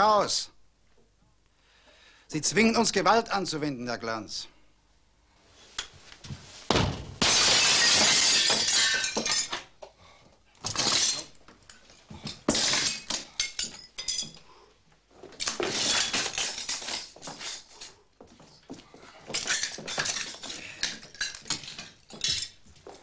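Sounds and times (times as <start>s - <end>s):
glass door shattering: 6.8s - 9.7s, 10.6s - 11.4s, 12.4s - 14.4s, 15.4s - 17.7s, 19.3s - 22.6s
glass shards tinkling: 10.7s - 14.4s, 19.3s - 23.0s.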